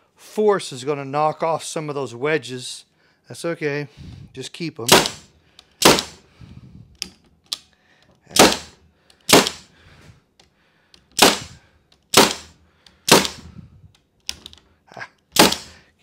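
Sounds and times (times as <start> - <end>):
air stapler shots: 4.9 - 6.2, 8.3 - 9.7, 11.1 - 13.6, 15.3 - 15.8.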